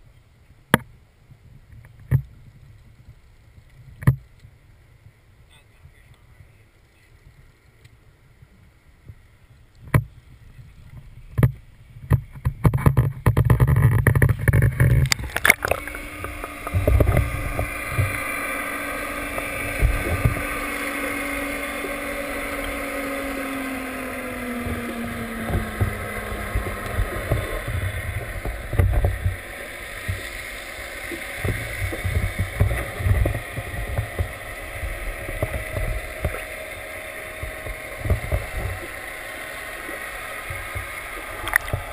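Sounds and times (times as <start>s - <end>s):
low underwater thumps: 11.3s - 22.1s, 23.5s - 39.0s
water rushing underwater: 13.5s - 41.9s
faint falling hum: 14.2s - 41.9s.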